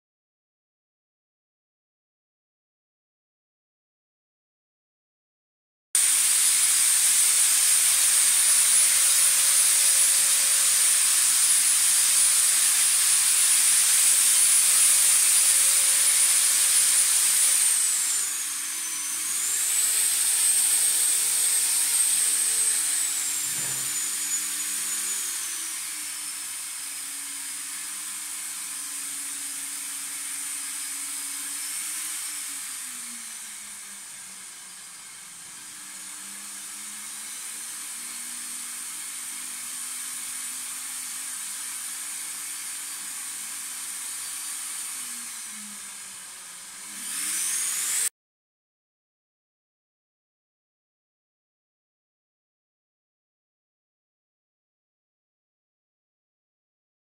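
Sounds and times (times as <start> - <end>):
high motor whine: 23.0 - 25.2.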